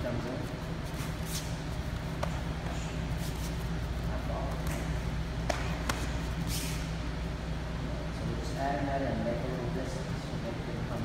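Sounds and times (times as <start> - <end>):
steady low hum: 0.0 - 11.0
gloved punches slapping: 4.6 - 6.2.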